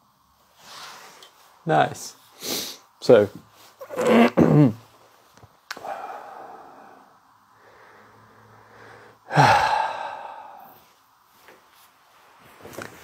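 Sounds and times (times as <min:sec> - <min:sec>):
man sighing: 0:05.8 - 0:07.1, 0:09.2 - 0:10.8
man exhaling: 0:05.8 - 0:10.9.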